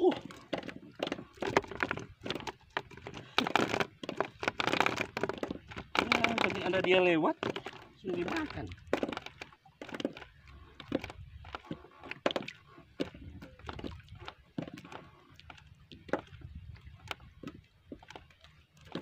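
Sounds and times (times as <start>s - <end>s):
knocks on wooden canoe hull: 0.3s - 10.2s.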